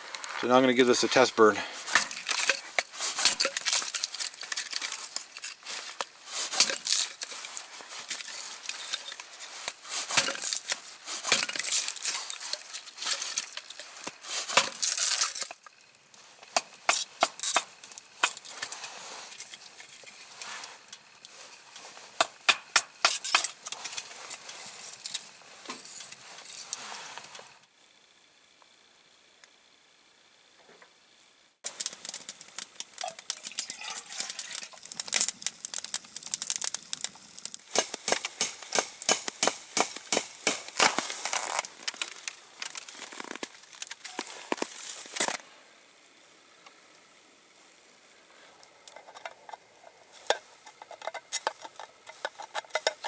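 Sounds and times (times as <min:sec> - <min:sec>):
wood snapping: 0:31.6 - 0:45.3
hatchet scraping wood: 0:37.7 - 0:42.2.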